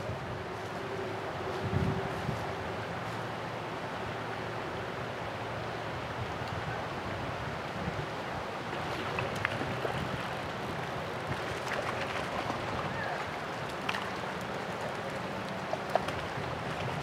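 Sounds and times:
river rushing: 0.0 - 17.0.

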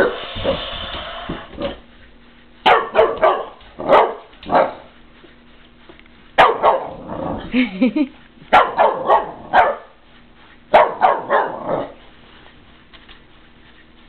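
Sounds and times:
puppy barking: 2.6 - 4.9, 6.4 - 7.1, 8.5 - 10.0, 10.7 - 12.0.

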